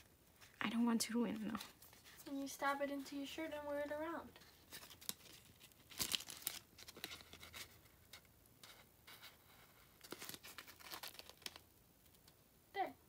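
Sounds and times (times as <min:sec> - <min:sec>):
paper card rustling in plastic holder: 0:01.2 - 0:07.8.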